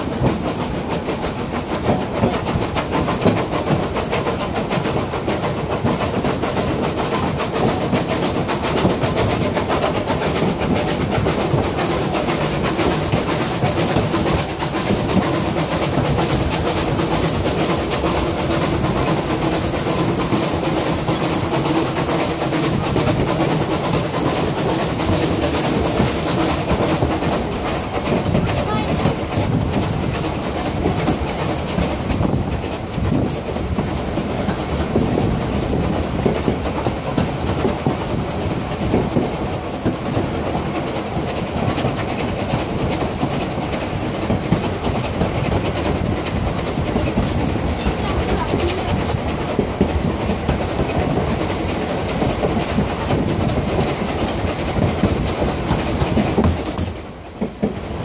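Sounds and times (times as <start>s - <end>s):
clacks over rail joints: 0.0s - 58.0s
train wheels rumbling on track: 0.0s - 58.0s.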